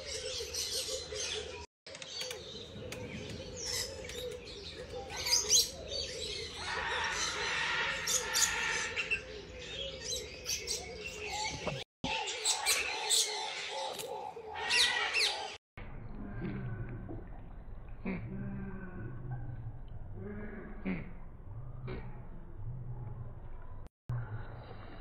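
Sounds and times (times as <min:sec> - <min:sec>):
birds chirping: 0:00.0 - 0:15.6.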